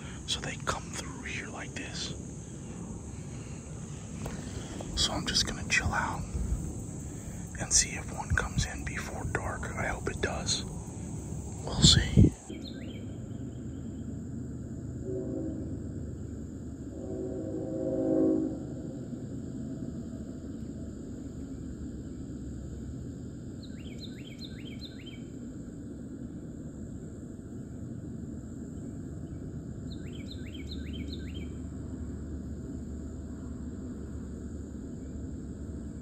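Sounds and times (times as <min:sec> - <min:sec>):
high insect drone: 0:00.0 - 0:36.0
bird chirping: 0:11.6 - 0:14.0, 0:29.9 - 0:31.6.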